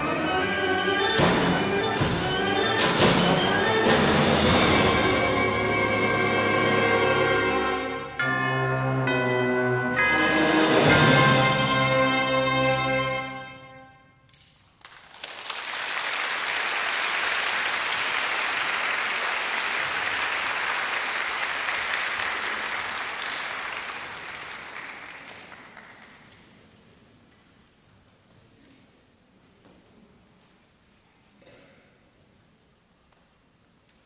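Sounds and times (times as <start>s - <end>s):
wind band chord: 0.0s - 13.9s
audience applause: 14.8s - 26.4s.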